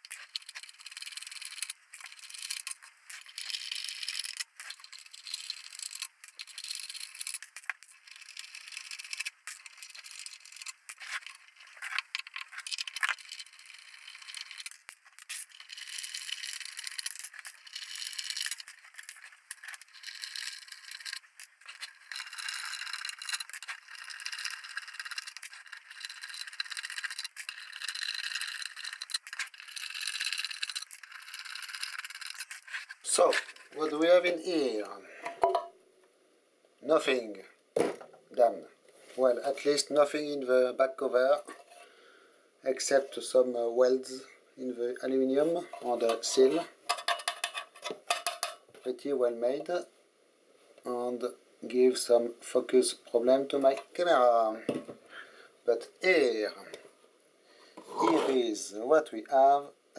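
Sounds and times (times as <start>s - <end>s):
metal bolts rattling and scraping: 45.6s - 48.6s.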